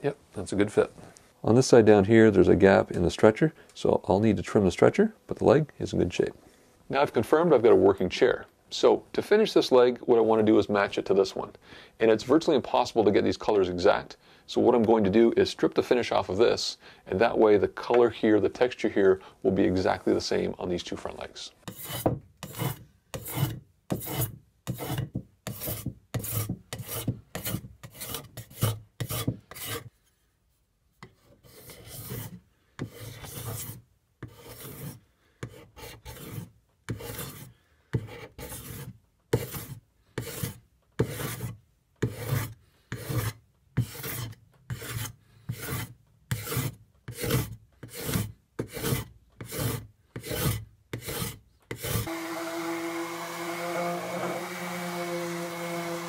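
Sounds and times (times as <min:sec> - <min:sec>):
scraper scraping wood: 0:21.6 - 0:30.0, 0:31.2 - 0:56.0.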